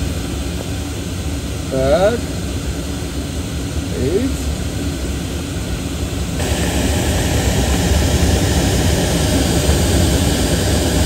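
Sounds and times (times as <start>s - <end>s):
wind rushing in cockpit: 4.6s - 11.0s.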